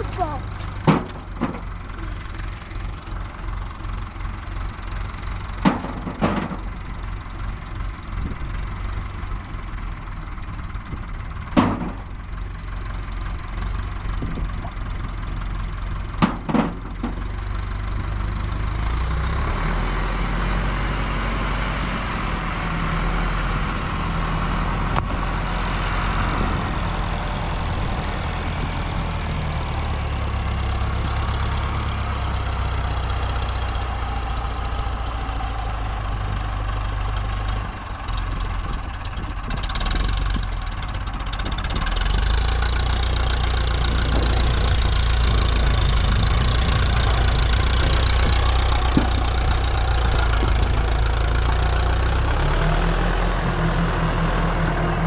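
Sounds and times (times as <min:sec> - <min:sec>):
engine idling: 0:00.0 - 0:55.0
sharp knocks: 0:00.7 - 0:01.7.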